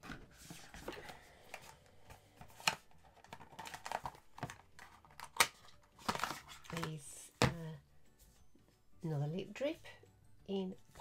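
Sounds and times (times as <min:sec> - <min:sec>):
cardboard packaging rustling: 0:00.0 - 0:07.0.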